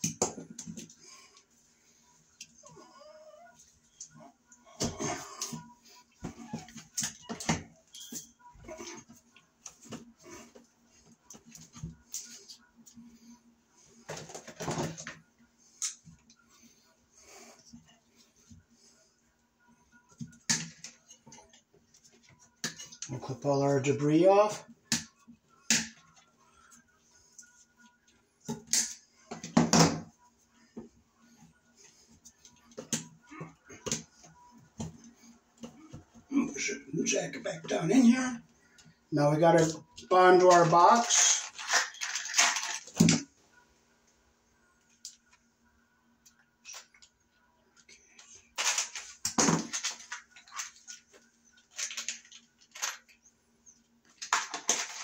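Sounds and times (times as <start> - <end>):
wires rustling: 31.3 - 43.2.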